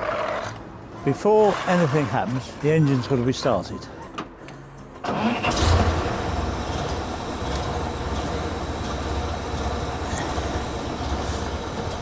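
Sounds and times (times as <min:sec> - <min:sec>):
engine idling: 0:05.1 - 0:12.0.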